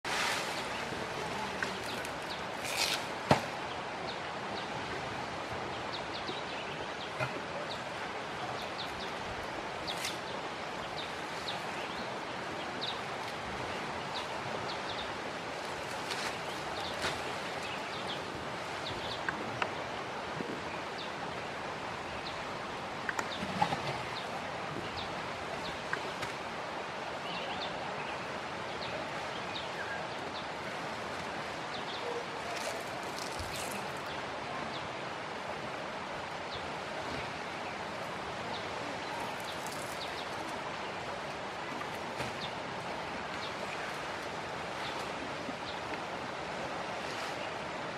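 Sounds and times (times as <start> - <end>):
elephants rustling fronds: 0.0 - 3.6, 15.4 - 18.7, 32.3 - 34.1, 39.0 - 40.7
steady outdoor hiss: 0.0 - 47.9
palm fronds snapping: 1.6 - 3.5.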